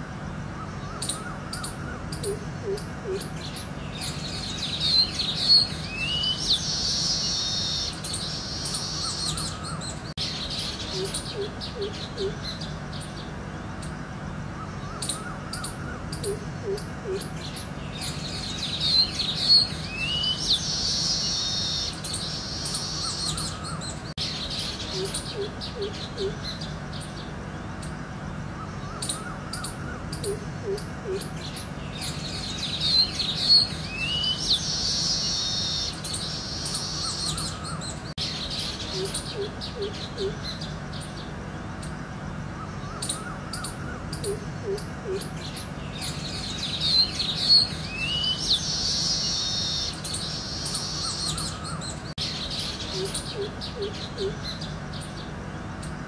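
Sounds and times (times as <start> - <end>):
birds chirping and trilling: 0.0 - 56.0
steady background hum: 0.0 - 56.0.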